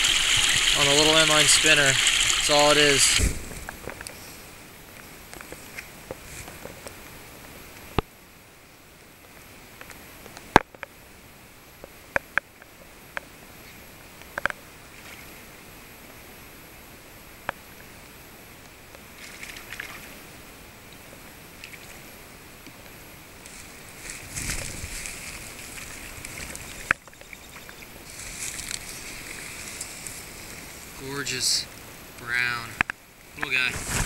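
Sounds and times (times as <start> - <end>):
stream water rushing: 0.0 - 3.8, 23.2 - 34.0.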